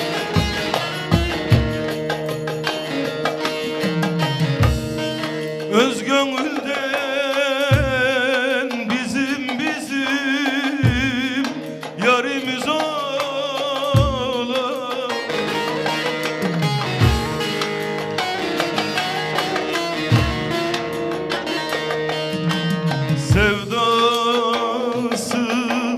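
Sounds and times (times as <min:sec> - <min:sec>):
plucked electric saz: 0:00.0 - 0:25.9
man singing with vibrato: 0:05.0 - 0:17.6, 0:23.1 - 0:25.9.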